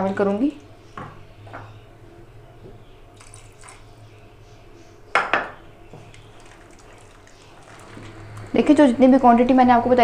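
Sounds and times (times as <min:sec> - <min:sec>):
low steady hum: 0:00.0 - 0:10.0
spoon knocking against pot: 0:05.1 - 0:06.0.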